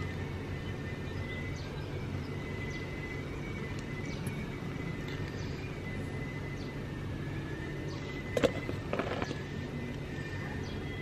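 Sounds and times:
faint bird chirps: 0.0 - 11.0
steady low hum: 0.0 - 11.0
thin steady high tone: 0.0 - 11.0.

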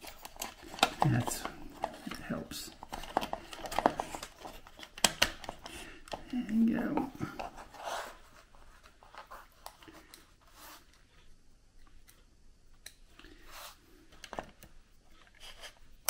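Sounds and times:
hands handling screwdriver and case: 0.0 - 6.3.

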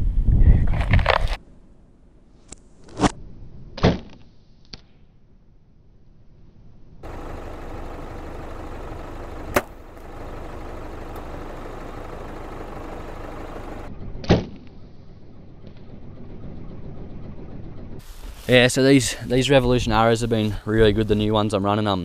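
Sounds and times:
bow shot crack: 9.4 - 10.2, 14.2 - 14.7
dull thud: 9.4 - 10.2
background hiss: 18.0 - 20.8.

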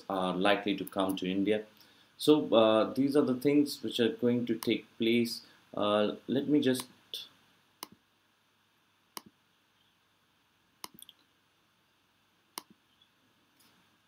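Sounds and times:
computer mouse clicks: 10.8 - 11.3, 12.6 - 12.8.

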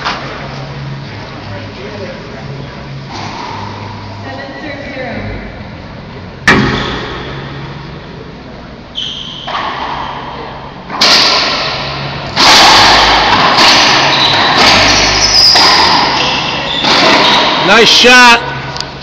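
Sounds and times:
racquetball hits echoing: 3.1 - 4.2, 6.4 - 8.4, 9.0 - 17.7.

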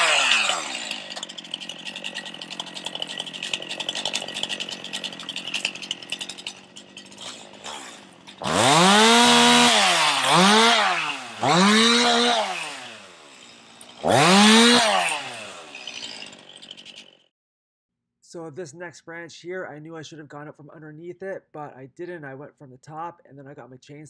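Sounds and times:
chainsaw idling and revving: 0.0 - 17.2.

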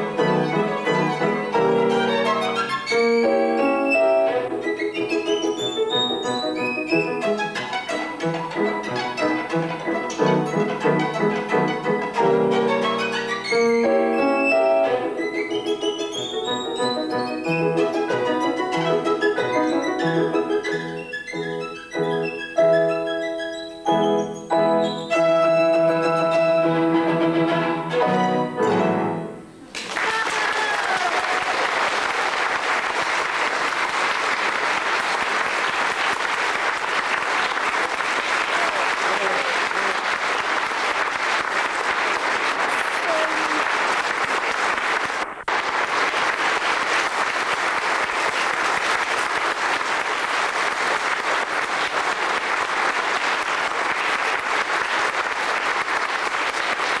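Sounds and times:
audience applauding: 0.0 - 3.5, 29.7 - 57.0.

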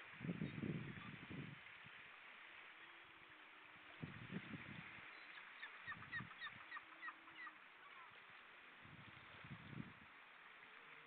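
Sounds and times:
distant waterfowl honking: 5.1 - 8.2.

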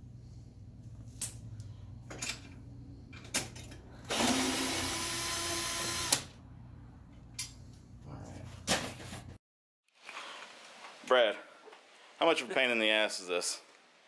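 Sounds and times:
knocks and clicks of handling parts: 2.1 - 3.8
cordless drill spinning bolt: 4.1 - 6.3.

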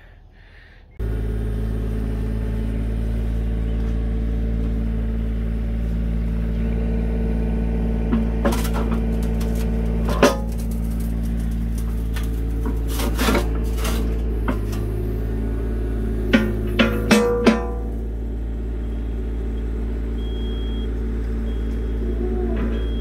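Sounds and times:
diesel engine idling: 0.0 - 23.0
sharp metal clanks: 16.3 - 18.0.

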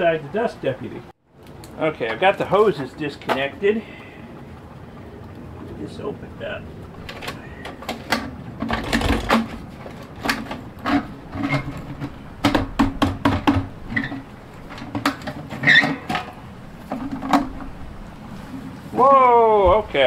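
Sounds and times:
metal lid knocking and clanking: 10.2 - 17.7.

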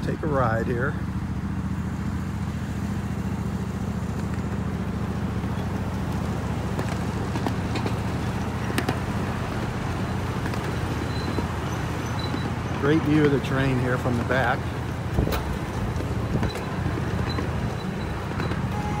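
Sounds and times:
miniature train rumbling on track: 0.0 - 19.0.

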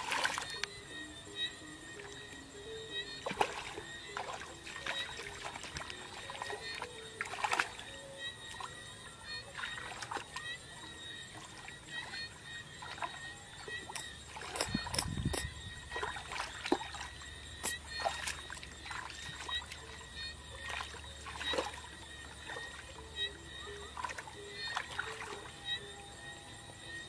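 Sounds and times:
hands splashing in muddy water: 3.2 - 7.9.

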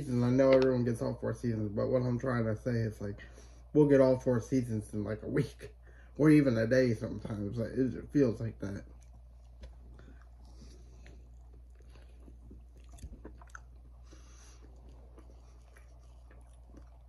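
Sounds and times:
man chewing: 8.7 - 17.0.

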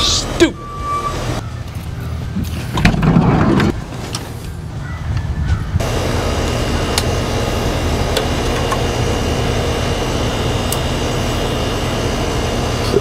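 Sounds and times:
air conditioner unit humming: 5.8 - 13.0.

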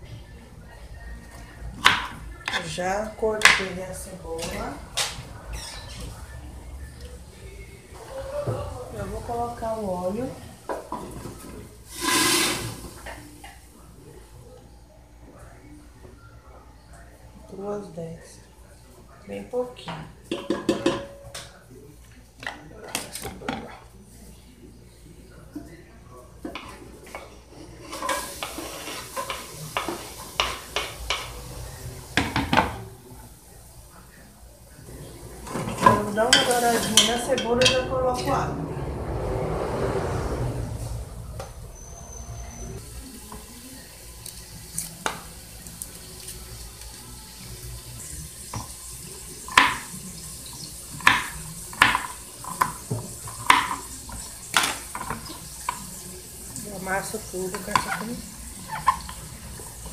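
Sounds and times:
onion sizzling in hot oil: 11.8 - 13.1, 27.8 - 32.7, 42.8 - 59.9.

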